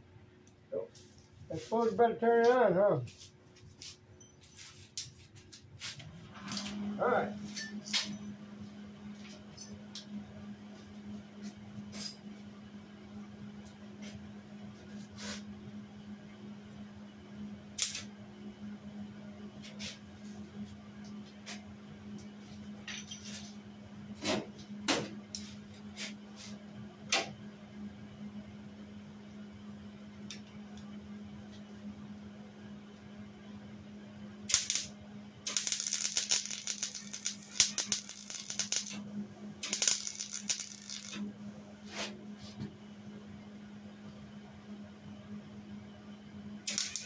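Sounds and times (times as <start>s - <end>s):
steady low hum: 0.0s - 47.0s
welder arc crackling: 17.8s - 18.1s, 34.5s - 39.0s, 39.6s - 41.3s, 46.7s - 47.0s.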